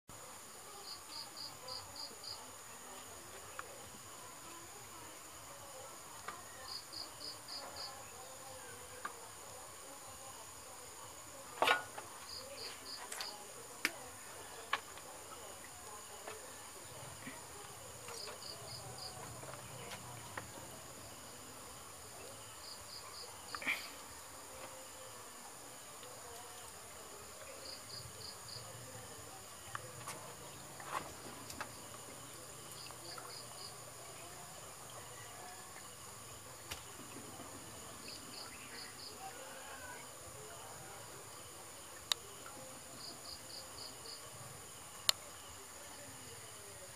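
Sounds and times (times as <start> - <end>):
insects droning: 0.1 - 46.9.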